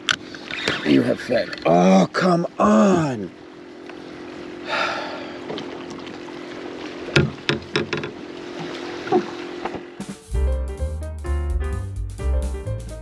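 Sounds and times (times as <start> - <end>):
choppy water: 0.0 - 10.1
steady hum: 0.0 - 10.2
knocks and clicks of gear: 7.1 - 8.2, 9.1 - 10.1
piano music: 10.0 - 13.0.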